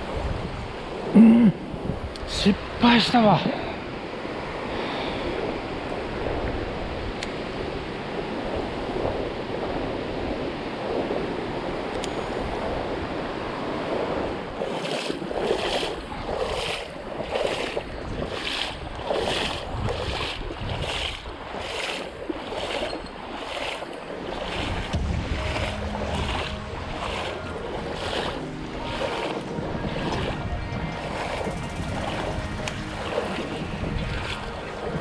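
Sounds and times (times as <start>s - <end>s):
stream water rushing: 0.0s - 35.0s.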